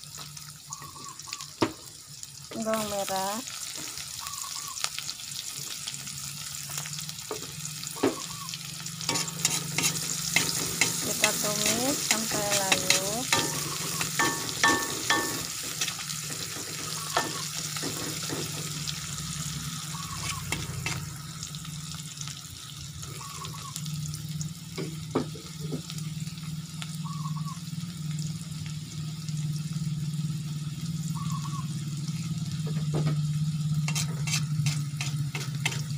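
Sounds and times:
garlic sizzling in hot oil: 0.0 - 35.9
metal spatula scraping a pan: 9.0 - 18.8, 19.9 - 21.1, 33.7 - 35.9.

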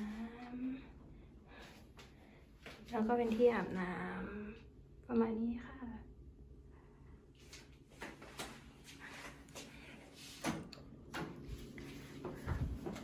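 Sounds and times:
faint steady hum: 0.0 - 13.0
footsteps: 11.2 - 13.0.

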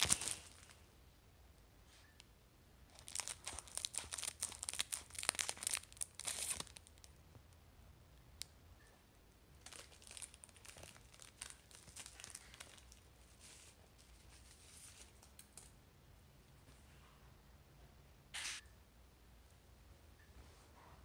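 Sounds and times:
foil wrapper crinkling and tearing: 0.0 - 0.8, 2.9 - 7.1, 9.6 - 15.4.

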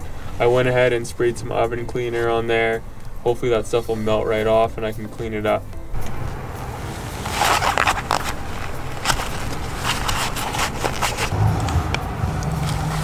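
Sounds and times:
scrapes and clicks of hand work: 7.2 - 11.8.

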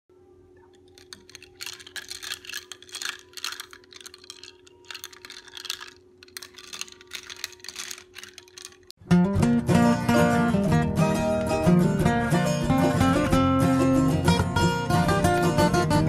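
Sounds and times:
ice clinking against glass: 0.9 - 8.9.

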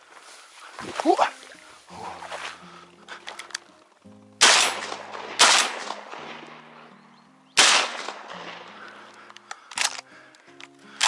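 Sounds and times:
background music: 0.3 - 11.0
shotgun shots: 4.4 - 6.9, 7.6 - 10.0.

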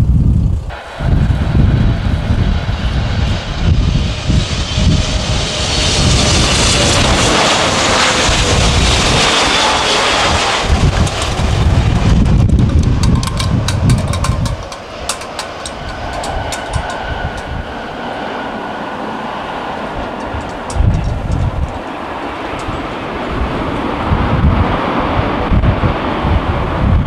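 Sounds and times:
deep rumble: 0.0 - 7.4, 8.2 - 17.9, 19.9 - 25.8
jet engines landing: 0.0 - 27.0.

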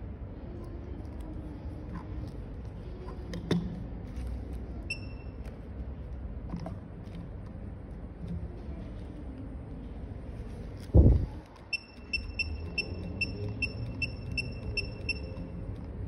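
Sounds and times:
low steady background hum: 0.0 - 16.0
short high electronic beep: 11.8 - 15.4.

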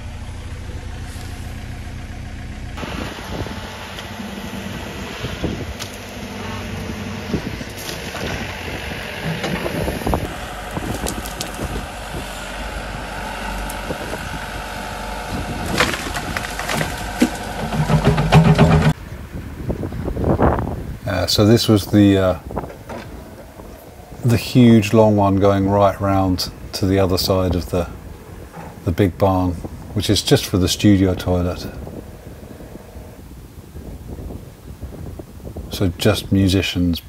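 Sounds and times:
digger engine running: 0.0 - 21.5, 22.2 - 35.6
bucket scraping earth: 3.3 - 14.4, 15.2 - 19.0
falling soil clattering: 5.7 - 14.3, 15.2 - 19.0.

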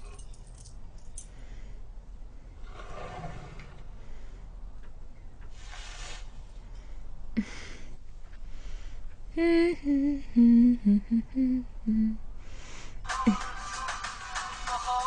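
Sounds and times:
woman humming: 9.3 - 12.2
music: 13.0 - 15.0.

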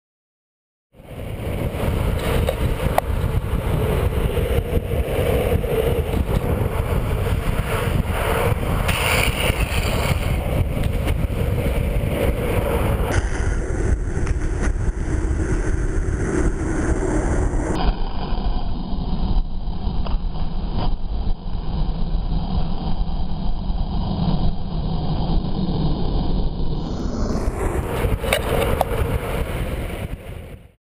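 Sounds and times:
longboard wheels rolling on asphalt: 1.0 - 30.8
wind buffeting microphone: 1.0 - 30.8.

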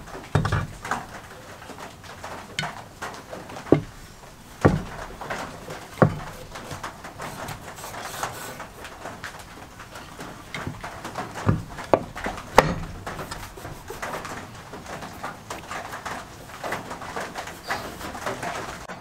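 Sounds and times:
metal vise knocking on wood: 0.3 - 1.2, 3.6 - 4.0, 4.6 - 9.3, 10.4 - 18.8.

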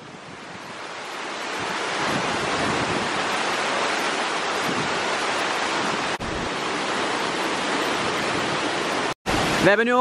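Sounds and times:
waterfall rushing over rocks: 0.0 - 10.0.

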